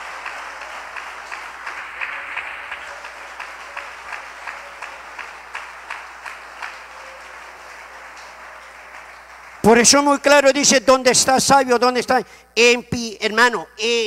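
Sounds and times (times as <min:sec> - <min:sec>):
scattered applause: 0:00.0 - 0:11.2
congregation clapping in unison: 0:00.0 - 0:11.9.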